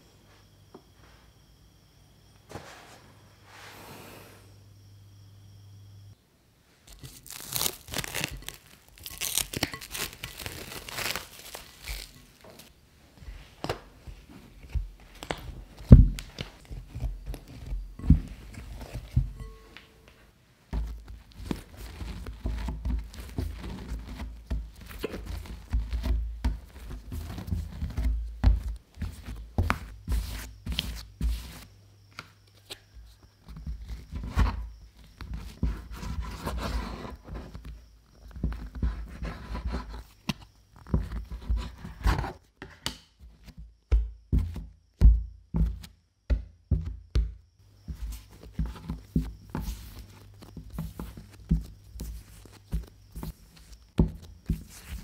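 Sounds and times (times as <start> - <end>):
sticky dough squelching and tearing: 6.9 - 12.7
dough thudding on wooden board: 43.9 - 49.7.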